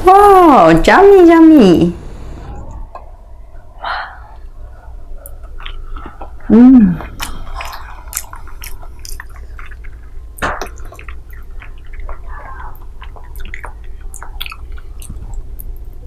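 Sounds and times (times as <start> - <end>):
wet chewing squishes: 4.4 - 16.0
loud mouth smack: 10.4 - 11.0.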